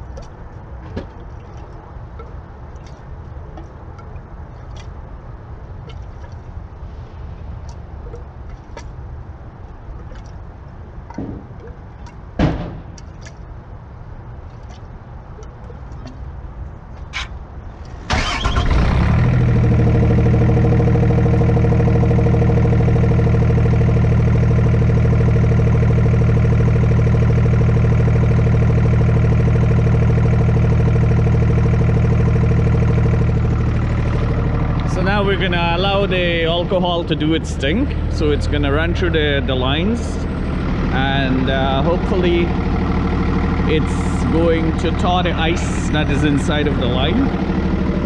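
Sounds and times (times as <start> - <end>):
diesel truck engine idling: 17.4 - 48.0.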